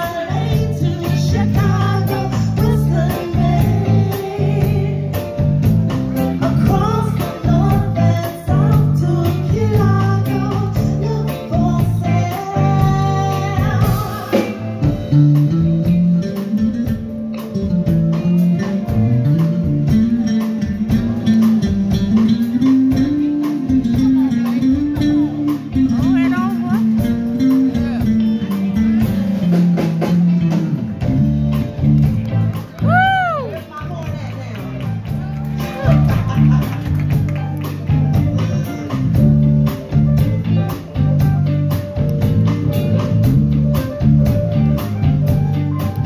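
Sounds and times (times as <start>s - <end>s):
woman singing: 0.0s - 5.6s, 6.4s - 15.0s
drums: 0.0s - 46.0s
electric bass: 0.0s - 46.0s
keyboard: 0.0s - 46.0s.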